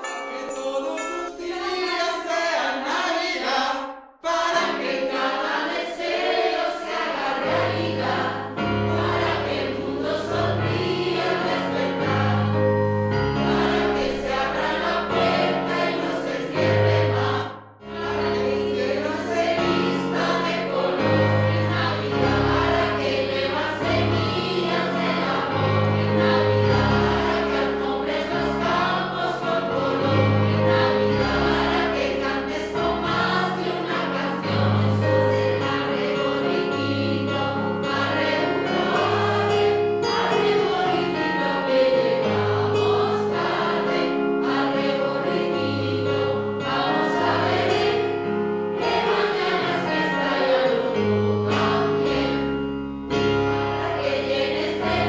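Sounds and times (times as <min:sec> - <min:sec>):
choir singing a carol: 0:00.0 - 0:55.0.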